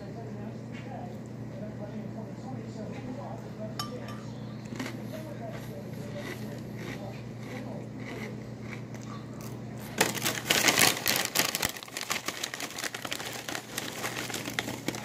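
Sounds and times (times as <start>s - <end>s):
crinkling and rustling: 9.9s - 15.0s.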